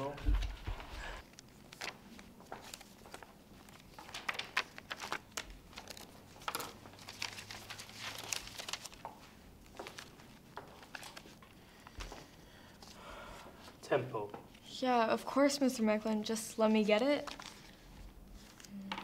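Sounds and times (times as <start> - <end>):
paper rustling and crinkling: 0.0 - 12.2, 16.8 - 19.0.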